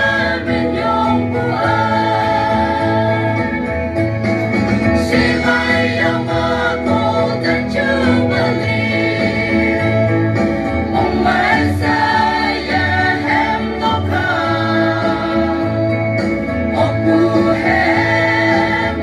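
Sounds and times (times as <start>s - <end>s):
mixed choir singing: 0.0s - 4.0s, 4.9s - 19.0s.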